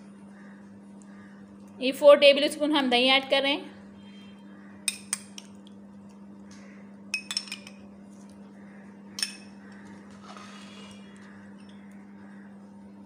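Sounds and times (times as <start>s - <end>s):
steady low hum: 0.0s - 13.0s
metal spoon clinking on dishes: 7.2s - 7.8s, 9.2s - 9.6s.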